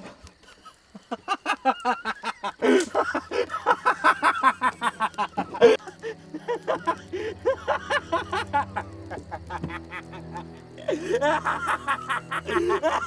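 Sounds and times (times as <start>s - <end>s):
man laughing: 0.4s - 13.0s
low steady drone: 5.5s - 13.0s.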